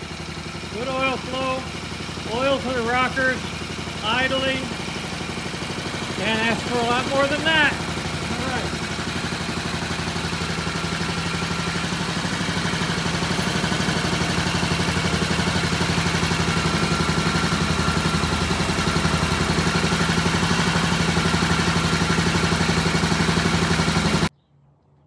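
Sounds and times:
motorcycle engine idling: 0:00.0 - 0:24.3.

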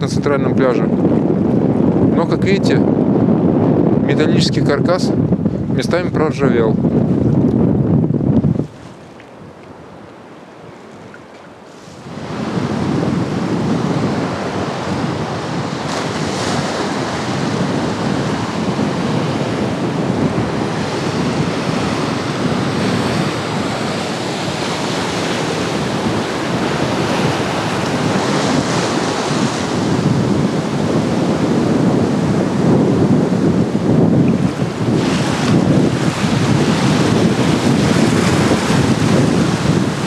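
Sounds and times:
wind buffeting microphone: 0:00.0 - 0:40.0
surf breaking: 0:10.8 - 0:40.0.

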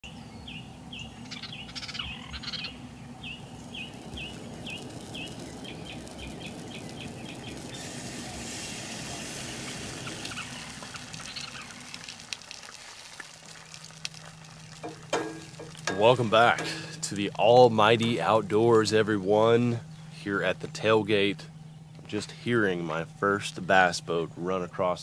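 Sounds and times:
songbirds singing: 0:00.0 - 0:12.3, 0:13.6 - 0:25.0
steady low rumble: 0:00.7 - 0:12.4, 0:13.6 - 0:25.0
sausage sizzling in a skillet: 0:03.5 - 0:17.2.

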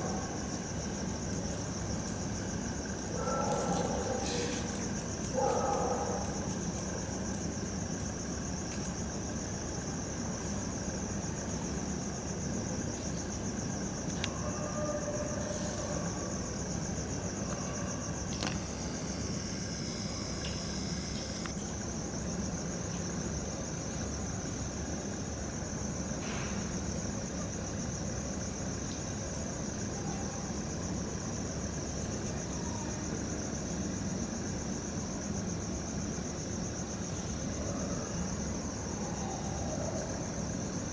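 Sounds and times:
crickets trilling: 0:00.0 - 0:40.9.

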